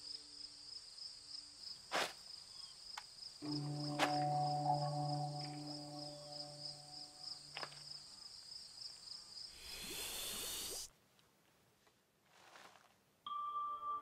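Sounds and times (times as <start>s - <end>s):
low sustained tones: 3.4s - 7.5s
loud hissing rush: 9.5s - 10.9s.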